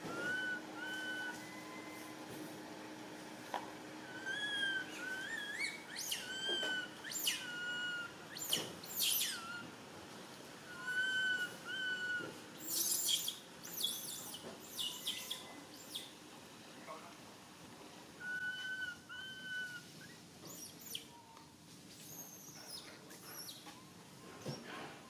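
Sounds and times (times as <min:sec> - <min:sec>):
harsh monkey screams: 0:00.0 - 0:01.4, 0:04.0 - 0:09.6, 0:10.7 - 0:16.0, 0:18.2 - 0:21.0
infant monkey whimpering: 0:00.0 - 0:02.0, 0:04.0 - 0:09.7, 0:10.7 - 0:15.4, 0:18.2 - 0:21.3, 0:22.1 - 0:23.6
monkey squeals: 0:00.1 - 0:01.4, 0:04.1 - 0:09.6, 0:10.7 - 0:16.0, 0:18.2 - 0:21.0.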